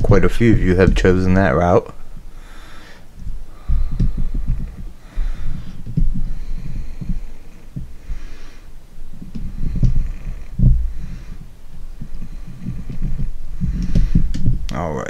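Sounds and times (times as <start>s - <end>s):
man breathing heavily: 0.0s - 14.7s
air thumps on microphone: 0.0s - 14.8s.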